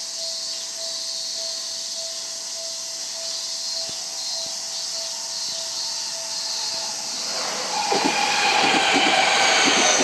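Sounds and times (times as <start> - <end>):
steady high hiss: 0.0 - 10.0
level-crossing bell ringing: 0.8 - 7.3.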